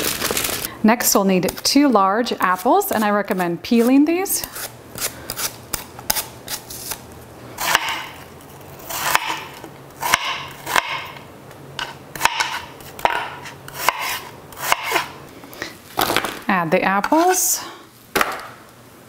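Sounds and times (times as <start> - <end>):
knife slicing apple: 1.4 - 11.2, 11.8 - 15.2.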